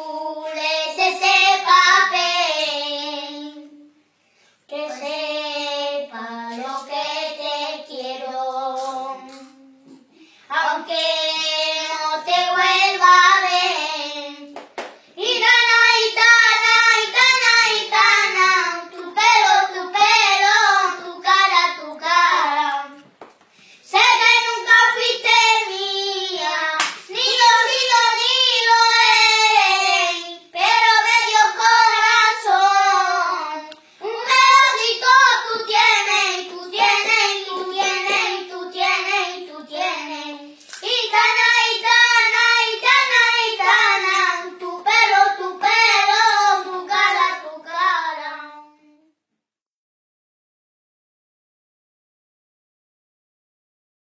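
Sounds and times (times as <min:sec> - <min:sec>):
boys singing unaccompanied: 0:00.0 - 0:04.0, 0:04.7 - 0:14.6, 0:15.2 - 0:23.0, 0:23.9 - 0:48.8.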